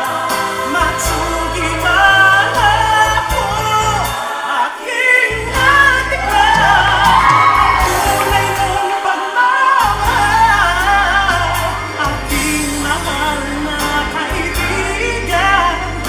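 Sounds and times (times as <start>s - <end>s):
low backing chords: 5.3s - 9.1s, 9.8s - 16.0s.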